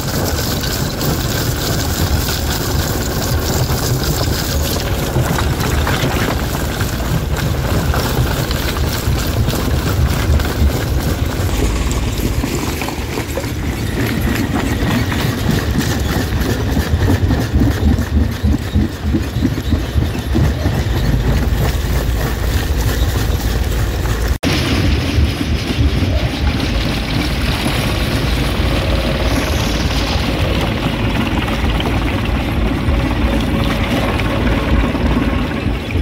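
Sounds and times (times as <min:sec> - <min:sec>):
stone cracking and clattering: 0:00.0 - 0:16.4
rock crusher rumbling: 0:00.0 - 0:36.0.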